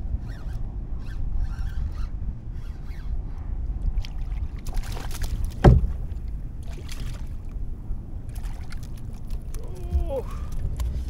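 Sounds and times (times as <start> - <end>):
water around a kayak: 0.0 - 11.0
wind: 0.0 - 11.0
sharp knock: 5.6 - 6.0.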